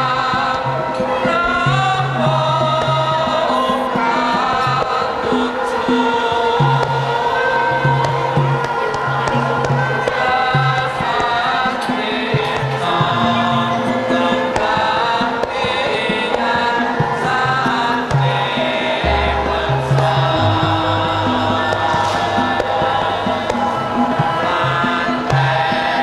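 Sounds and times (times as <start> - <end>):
mixed chorus singing: 0.0 - 26.0
low gamelan tones: 16.8 - 26.0.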